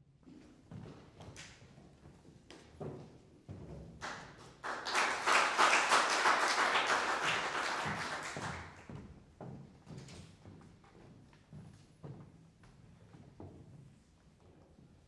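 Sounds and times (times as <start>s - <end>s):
audience applauding: 4.0s - 8.8s.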